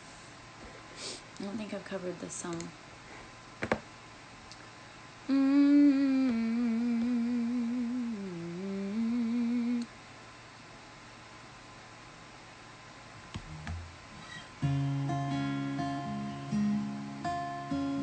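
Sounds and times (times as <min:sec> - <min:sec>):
woman humming: 0:05.3 - 0:09.9.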